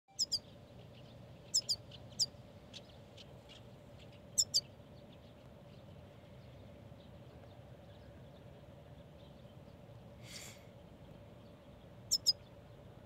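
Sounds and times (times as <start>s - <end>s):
goldfinch chirping: 0.1s - 4.7s, 12.1s - 12.5s.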